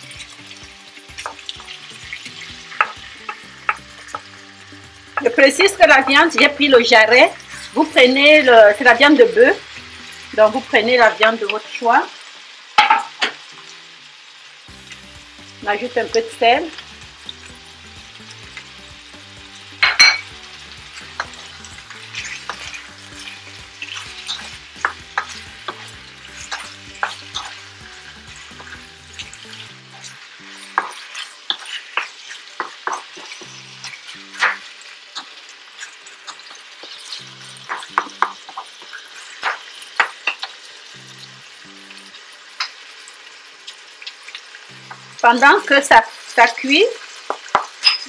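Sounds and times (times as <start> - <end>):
meat and onion sizzling in oil: 0.0 - 48.0
wooden spoon scraping and knocking pan: 29.9 - 34.6.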